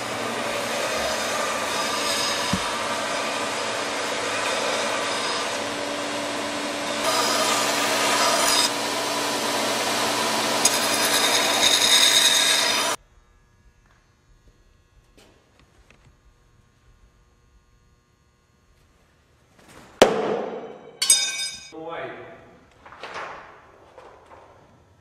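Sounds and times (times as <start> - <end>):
belt sander motor humming: 0.0 - 13.0
knife blade grinding on belt: 10.6 - 12.9.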